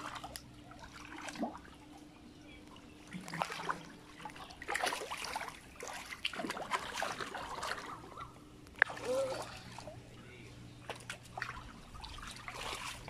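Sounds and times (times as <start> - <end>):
hands splashing in muddy water: 10.8 - 13.0.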